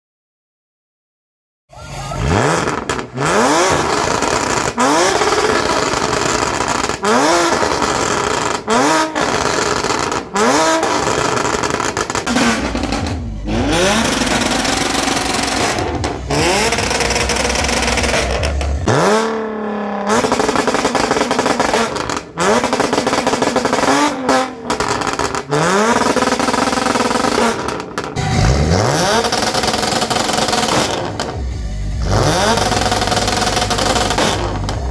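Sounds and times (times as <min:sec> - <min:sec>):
car engine revving hard: 0:01.8 - 0:34.9.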